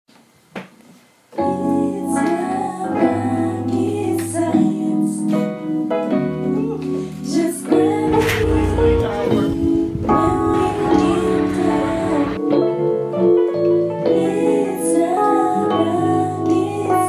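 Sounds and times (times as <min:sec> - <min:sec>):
woman singing: 0:01.6 - 0:05.6, 0:07.2 - 0:08.8, 0:10.0 - 0:12.4, 0:14.0 - 0:17.0
held keyboard chords: 0:07.7 - 0:13.1.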